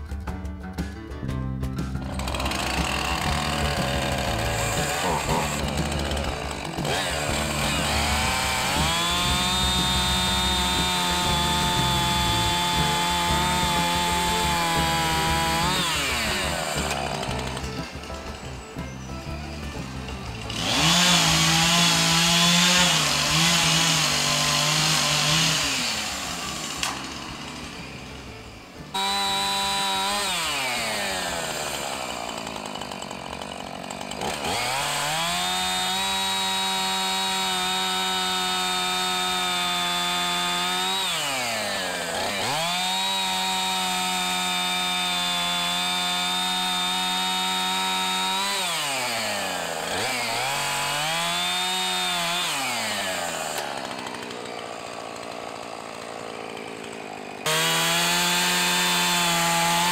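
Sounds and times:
chainsaw engine revving: 1.8s - 59.9s.

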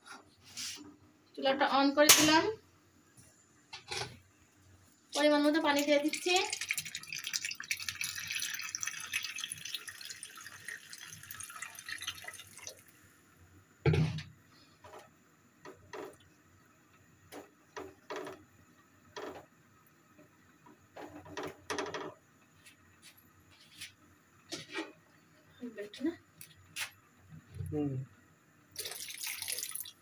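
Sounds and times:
water pouring into a pot: 5.2s - 13.0s, 28.8s - 30.0s.

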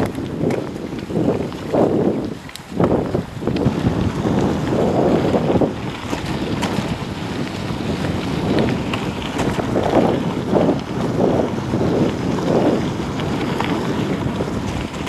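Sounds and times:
tyres crunching on gravel: 0.0s - 15.0s
wind buffeting the microphone: 0.0s - 15.0s
small clicks and rattles: 5.9s - 10.9s.

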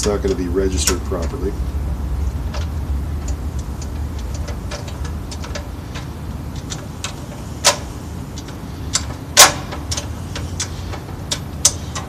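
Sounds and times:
low steady hum: 0.0s - 12.0s
screwdriver clicks and metal taps: 2.5s - 12.0s.

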